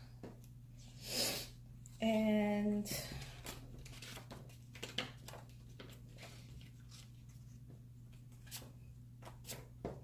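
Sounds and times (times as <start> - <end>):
steady low hum: 0.0 - 10.0
paper pages rustling: 3.2 - 9.7.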